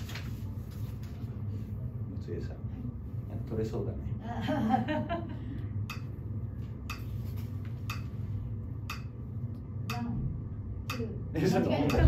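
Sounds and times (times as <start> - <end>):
metronome clicking: 8.9 - 9.1, 10.8 - 11.1.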